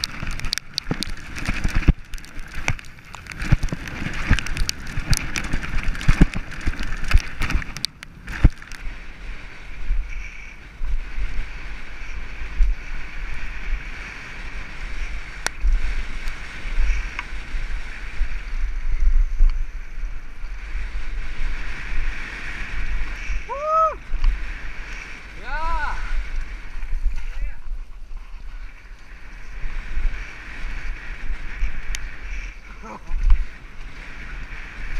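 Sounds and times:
bike clattering and rattling: 0.0 - 8.9
bike tyres rolling on dirt: 0.0 - 34.9
wind buffeting microphone: 0.0 - 34.9.

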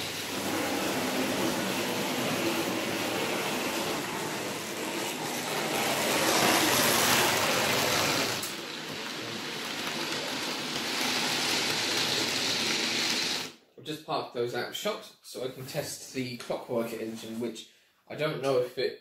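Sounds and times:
model trains whirring on track: 0.0 - 13.6.

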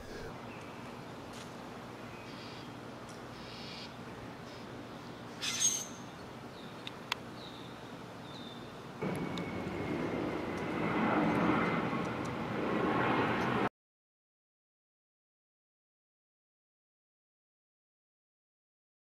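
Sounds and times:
steady rush of noise: 0.0 - 0.5.

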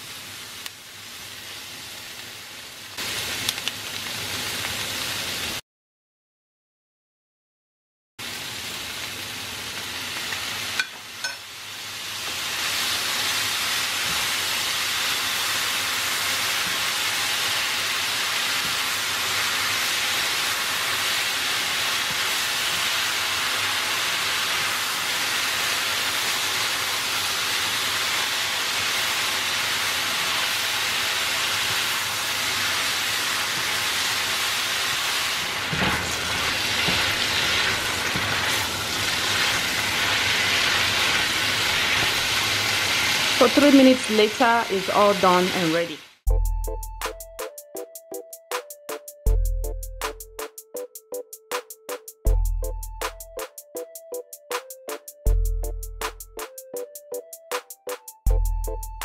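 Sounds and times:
stir-fry sizzling in a pan: 0.0 - 5.6, 8.2 - 46.3.

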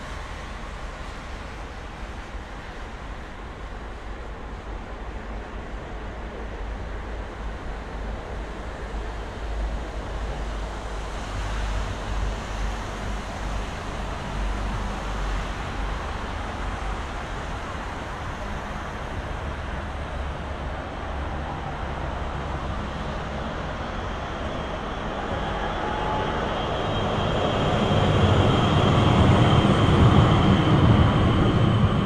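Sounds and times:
tram high steady tones: 0.0 - 32.0
road traffic rumble: 8.0 - 32.0.

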